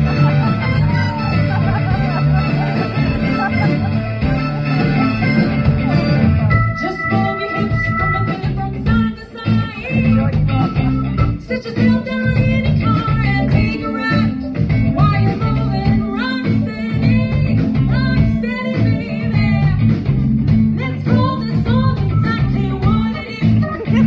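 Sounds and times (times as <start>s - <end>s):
live band playing: 0.0s - 24.0s
woman singing: 6.7s - 10.3s, 11.3s - 19.9s, 20.7s - 24.0s.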